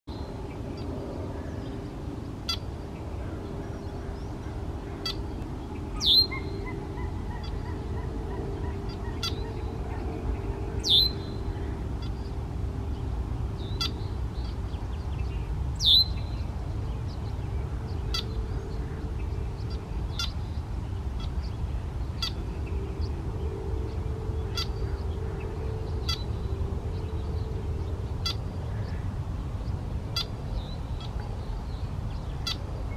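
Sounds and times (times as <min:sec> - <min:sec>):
faint hum: 0:00.1 - 0:32.9
low background rumble: 0:00.1 - 0:32.9
blackbird calling: 0:02.5 - 0:12.4, 0:17.9 - 0:20.5, 0:21.2 - 0:29.1, 0:32.3 - 0:32.7.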